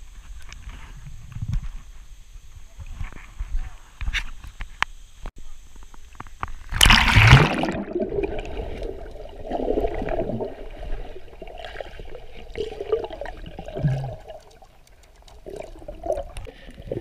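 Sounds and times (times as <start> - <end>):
water gurgling and sloshing: 6.6 - 17.0
loud splash into water: 6.7 - 8.8.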